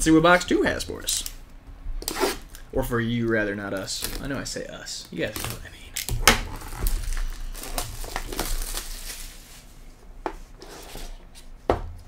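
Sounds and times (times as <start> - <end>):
plastic wrap crinkling: 2.4 - 10.1.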